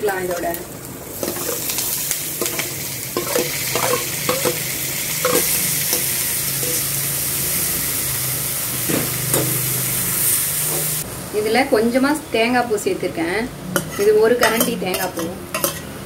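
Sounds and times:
lentils sizzling in hot oil: 0.0s - 11.1s
spatula scraping metal pan: 13.8s - 15.9s.

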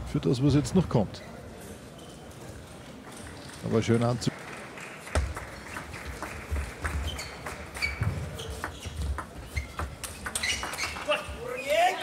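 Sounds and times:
shoe squeaks: 1.8s - 2.5s, 6.8s - 12.0s.

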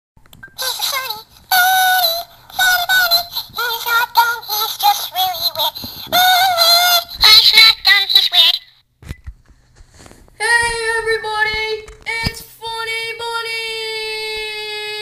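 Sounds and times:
high-pitched voice singing: 0.6s - 8.8s.

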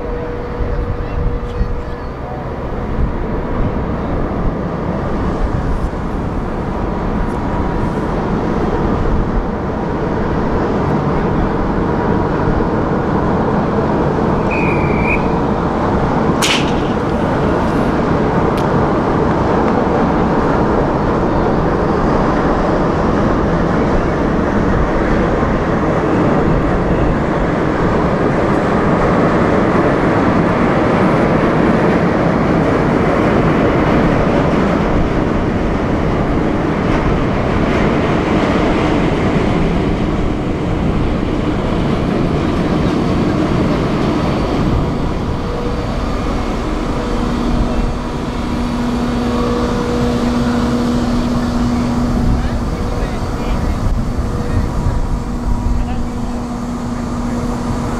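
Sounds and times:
ferry machinery rumbling: 0.0s - 57.9s
low steady tone: 45.0s - 57.9s.

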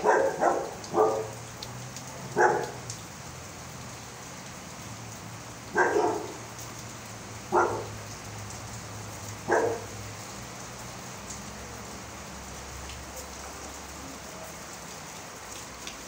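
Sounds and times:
dog barking: 0.0s - 1.4s, 2.3s - 2.8s, 5.7s - 6.4s, 7.5s - 8.0s, 9.4s - 9.9s
rain falling: 0.0s - 16.0s.

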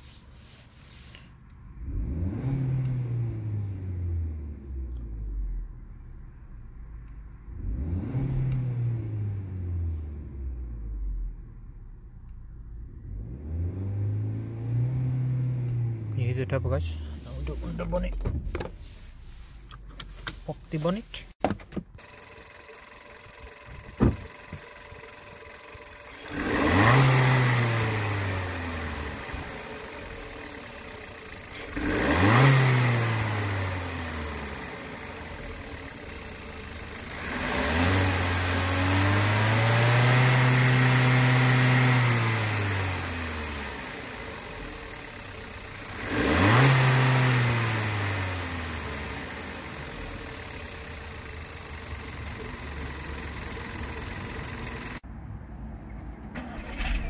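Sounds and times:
car engine idling and revving: 0.0s - 57.0s.

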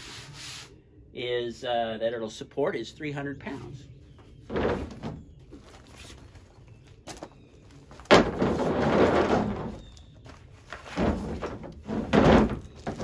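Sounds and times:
cot scraping in truck bed: 7.9s - 13.0s.

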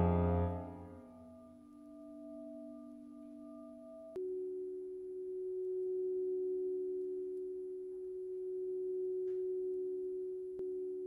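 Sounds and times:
electronic sine tones: 0.0s - 1.3s.

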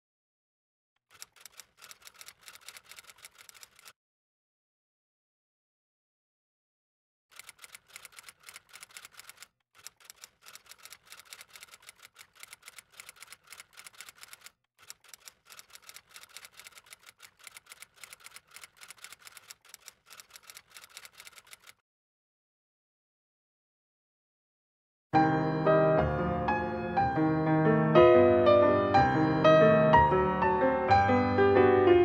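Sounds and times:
typewriter keys clacking: 1.0s - 3.9s, 7.3s - 21.8s.

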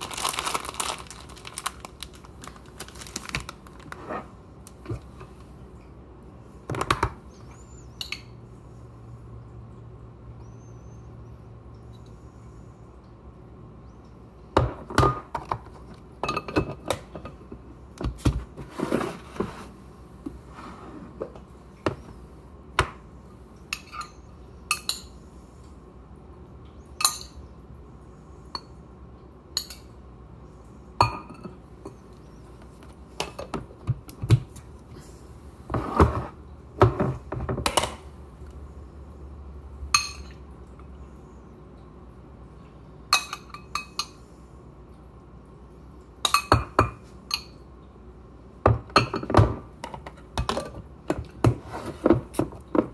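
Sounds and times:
spoon clinking on glass and crockery: 40.0s - 40.4s, 43.2s - 44.2s.

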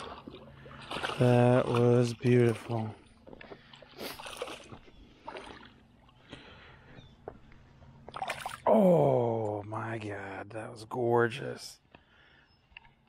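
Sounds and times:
fish splashing in water: 0.0s - 6.2s, 8.0s - 8.8s.

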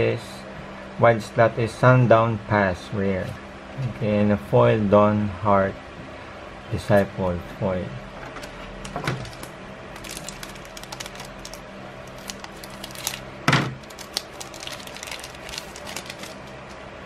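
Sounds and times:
foil wrapper crinkling: 9.2s - 16.8s.

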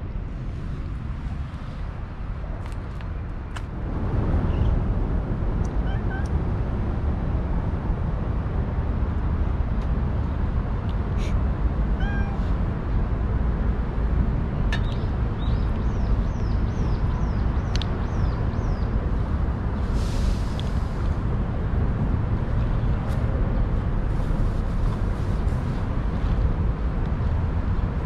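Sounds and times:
cat meowing: 5.8s - 6.3s, 11.9s - 12.5s.

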